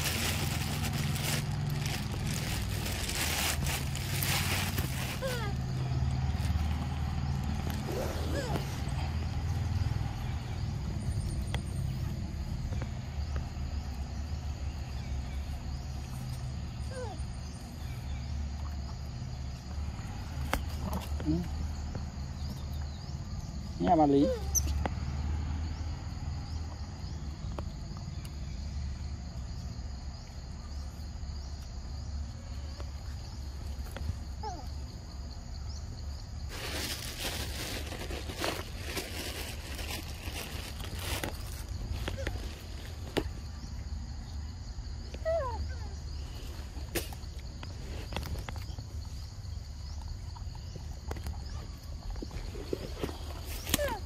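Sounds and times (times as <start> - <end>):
rustling crackling with clicks: 0.0 - 7.9
insects chirping: 0.0 - 54.0.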